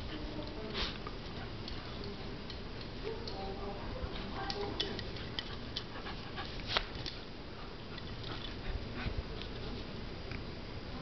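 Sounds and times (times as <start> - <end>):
puppy claws clicking on tile: 4.4 - 5.9.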